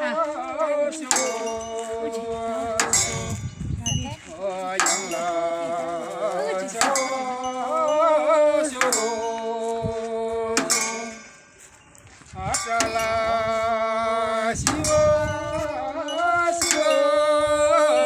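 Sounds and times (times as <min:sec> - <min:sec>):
voices singing a wavering chant: 0:00.0 - 0:18.0
cymbal strikes ringing: 0:01.0 - 0:03.6, 0:04.7 - 0:09.6, 0:10.6 - 0:11.9, 0:12.5 - 0:17.1.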